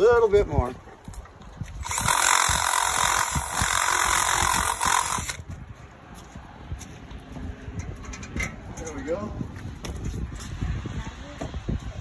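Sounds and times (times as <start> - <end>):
cordless drill running: 1.8 - 5.4.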